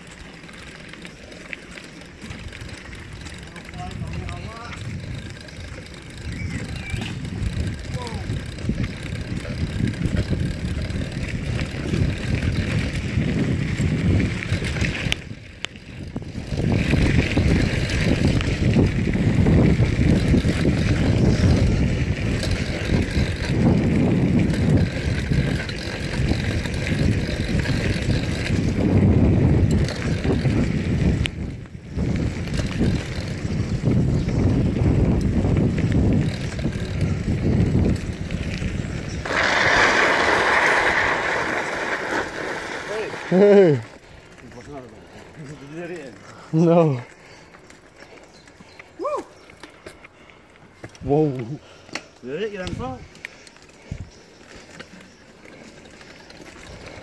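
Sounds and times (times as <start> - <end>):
bicycle tyres rumbling on gravel: 0.0 - 57.0
wind rushing over microphone: 2.4 - 43.9.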